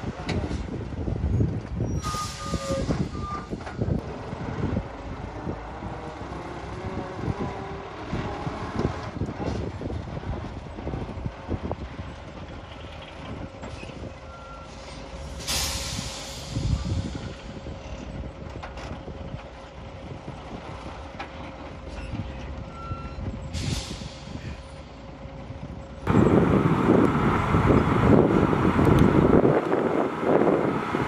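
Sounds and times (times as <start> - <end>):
dump truck running: 0.0 - 31.0
air brake hisses: 2.0 - 3.6, 14.6 - 17.7, 23.5 - 24.6
loud rushing noise: 26.1 - 31.0.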